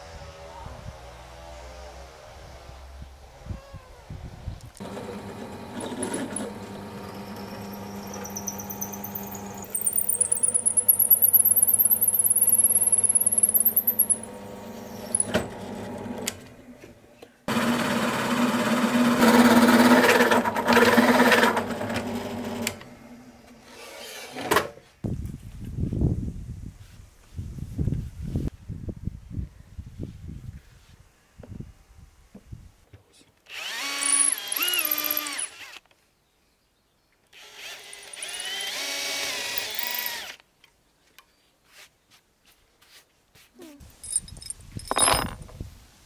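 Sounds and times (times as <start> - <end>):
drill press motor humming: 4.8 - 16.4
drill bit drilling into wood: 33.5 - 35.8, 37.4 - 40.4.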